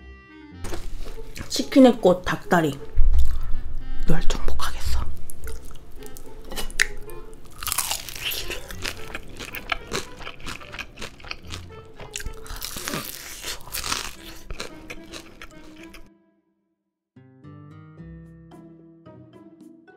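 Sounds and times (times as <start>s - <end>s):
light background music: 0.0s - 16.2s, 17.5s - 19.9s
crunching bites of fried chicken: 5.5s - 16.1s.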